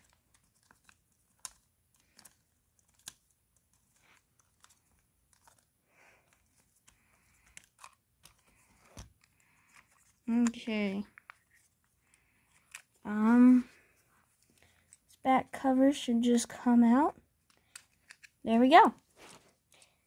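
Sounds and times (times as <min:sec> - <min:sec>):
plastic handling: 0:00.0 - 0:15.2.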